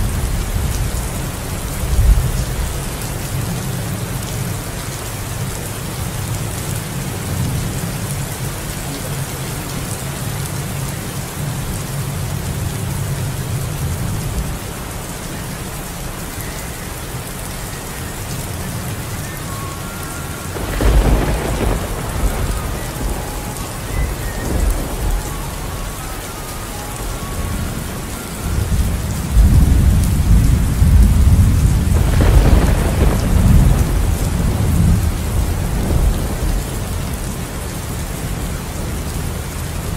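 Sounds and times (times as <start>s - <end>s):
steady rain: 0.0s - 39.9s
thunder rumbling: 18.6s - 37.7s.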